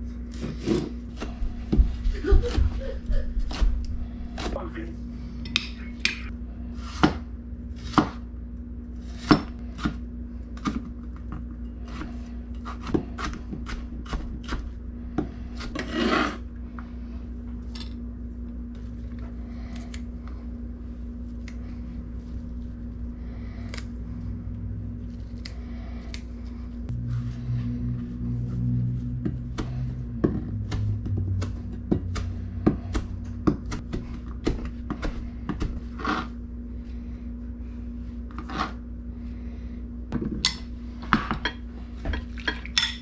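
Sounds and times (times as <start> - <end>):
steady low hum: 0.0 - 43.0
knife chopping on plastic board: 29.6 - 36.2.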